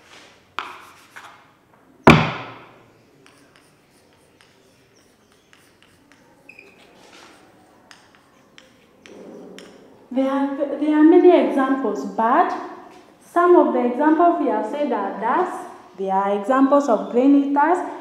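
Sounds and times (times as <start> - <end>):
chalk writing on chalkboard: 0.6 - 1.5, 3.0 - 10.0
loud thud: 2.1 - 2.8.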